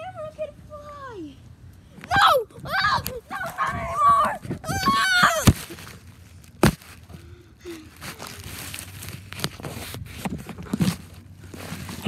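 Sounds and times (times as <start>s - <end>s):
rustling and crinkling: 3.0s - 12.0s.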